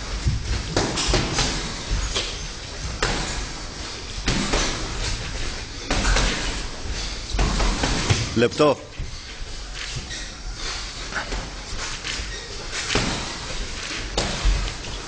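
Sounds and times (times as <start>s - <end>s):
boxing gloves slapping mitts: 0.1s - 3.6s, 4.2s - 6.7s, 7.3s - 8.4s, 11.2s - 15.0s.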